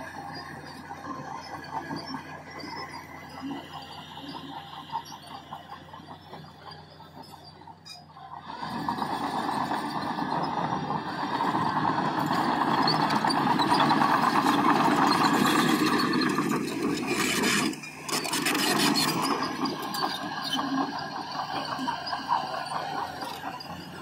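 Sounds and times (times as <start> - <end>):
diesel construction machinery: 0.0 - 24.0.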